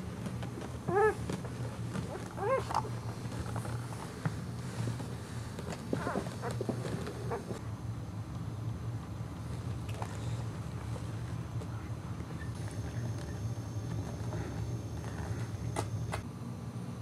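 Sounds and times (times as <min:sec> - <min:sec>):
puppy whimpering: 0:00.9 - 0:01.2, 0:02.2 - 0:02.9.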